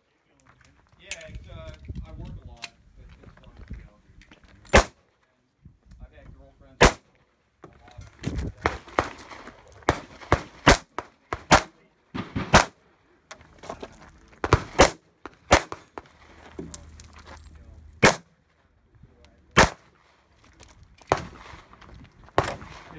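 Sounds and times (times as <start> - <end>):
pistol shots: 4.7 - 5.0, 6.8 - 7.0, 8.6 - 12.8, 14.4 - 16.1, 18.0 - 18.3, 19.6 - 19.9, 21.1 - 21.7, 22.4 - 22.9.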